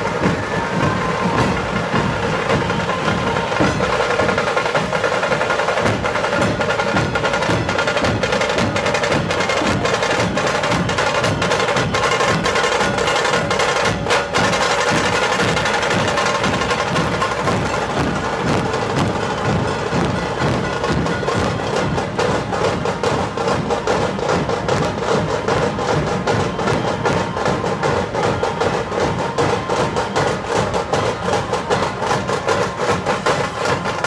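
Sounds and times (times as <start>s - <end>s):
fast drum rolls: 0.0s - 34.0s
large barrel drums beaten: 0.0s - 34.0s.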